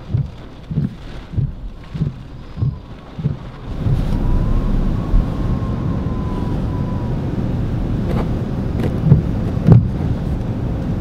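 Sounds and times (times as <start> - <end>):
wind roaring over microphone: 0.0 - 11.0
faint steady whistle: 2.4 - 2.9, 3.7 - 8.2.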